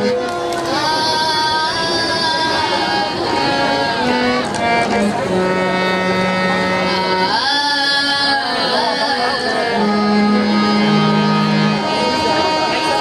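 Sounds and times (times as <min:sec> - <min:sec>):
harmonium held notes: 0:00.0 - 0:13.0
girl singing into microphone: 0:00.3 - 0:03.1, 0:07.3 - 0:09.4.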